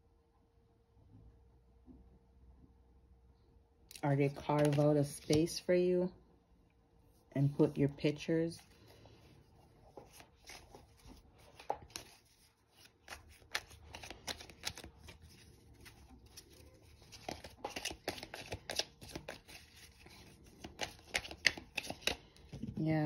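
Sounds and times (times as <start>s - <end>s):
cards being shuffled: 4.2s - 5.7s, 8.6s - 22.7s.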